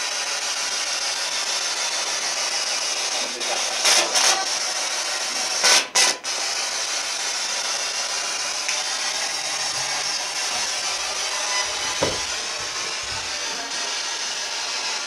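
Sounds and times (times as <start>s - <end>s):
radio static hiss: 3.0s - 6.2s, 9.2s - 15.0s.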